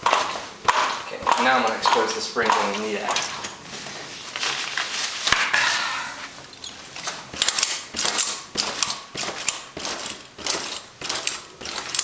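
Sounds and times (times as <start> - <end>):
fabric rustling: 3.6 - 6.5.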